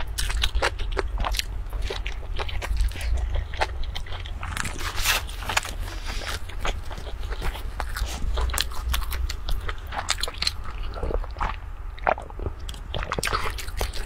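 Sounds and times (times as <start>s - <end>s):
person chewing food: 0.0s - 14.0s.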